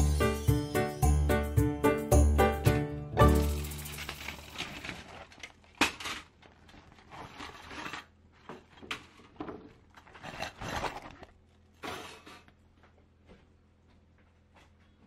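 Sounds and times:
mesh bag rustling: 3.4s - 8.0s.

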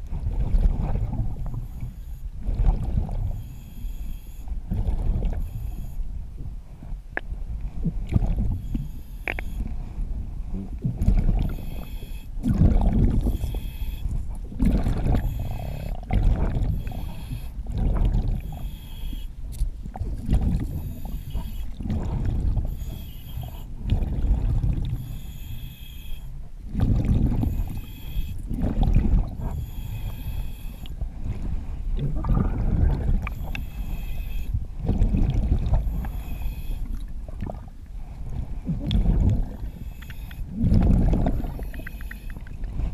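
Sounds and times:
diver breathing through regulator: 0.8s - 6.2s, 8.2s - 19.5s, 20.3s - 37.2s, 38.0s - 42.9s
bubbling exhalation: 32.0s - 33.3s.

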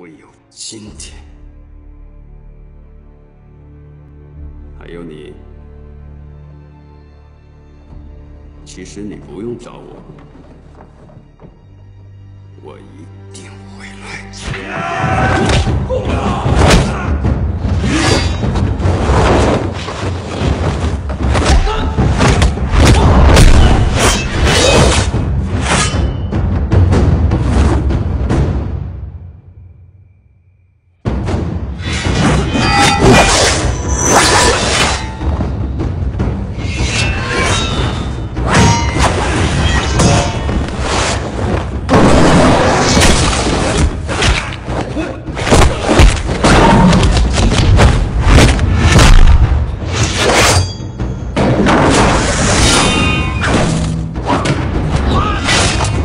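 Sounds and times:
film music: 0.0s - 56.0s
punch and impact effects: 45.4s - 49.6s.

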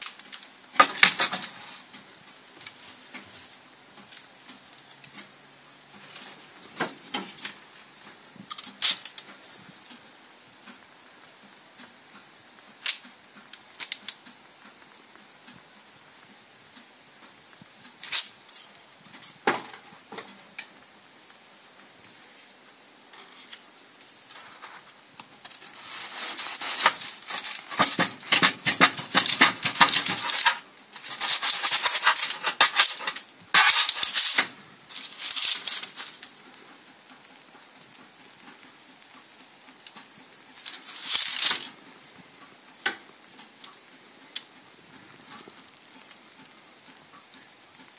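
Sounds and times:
parchment paper crinkling: 24.2s - 36.3s
sharp clicks and knocks: 24.4s - 36.4s.

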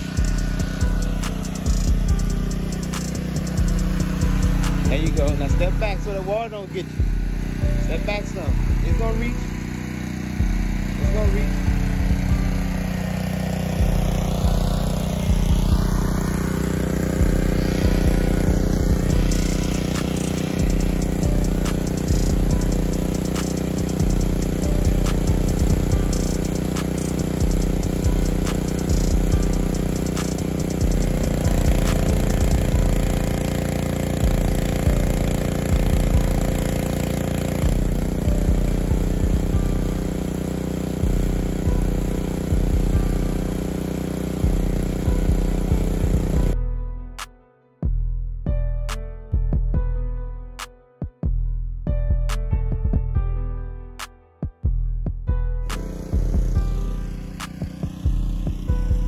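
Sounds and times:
pressure washer engine running: 0.0s - 46.6s, 55.6s - 59.0s
wand spraying water: 0.0s - 46.6s, 55.7s - 58.8s.

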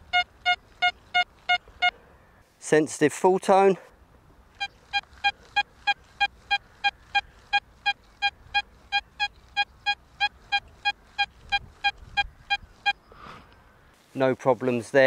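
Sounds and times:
metal detector beeping tone: 0.0s - 2.0s, 4.6s - 13.0s.

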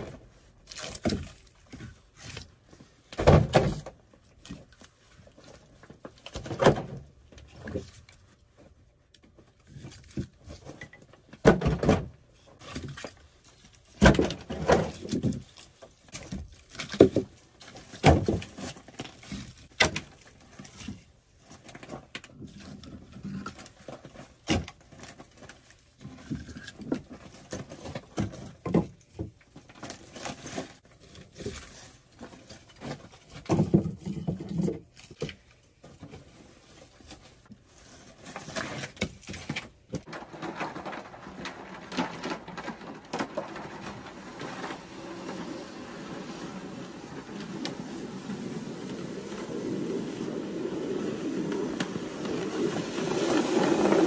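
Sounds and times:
firewood logs knocking together: 16.1s - 20.2s, 32.8s - 35.4s.

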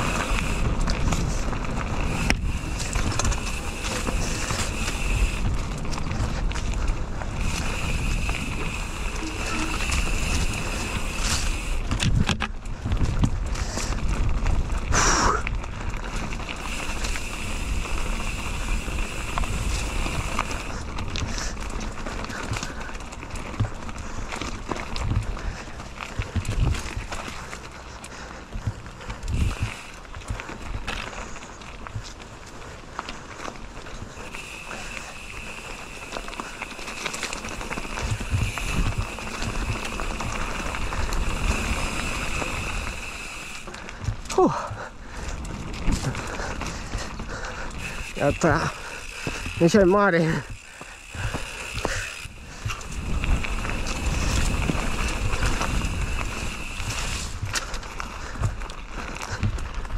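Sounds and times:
wind buffeting microphone: 0.0s - 27.7s, 28.3s - 31.0s, 35.1s - 59.9s
bike tyre and frame rattle: 0.0s - 59.9s.

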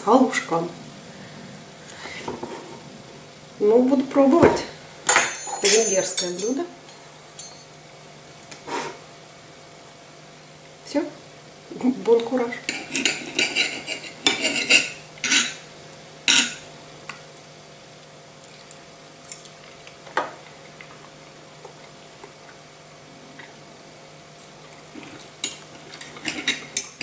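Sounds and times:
faint steady hum: 0.0s - 27.0s
cutlery clinking on a bowl: 5.1s - 7.7s, 12.6s - 15.6s, 16.3s - 16.6s, 25.4s - 27.0s.

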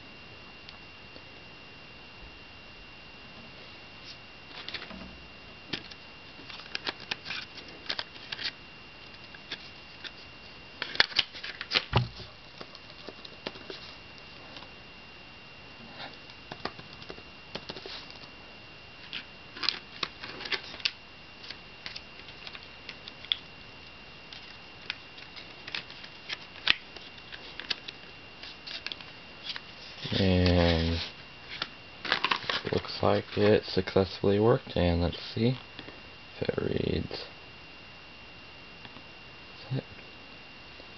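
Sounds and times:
faint high whine: 0.0s - 40.9s
dull thump: 11.9s - 12.3s.

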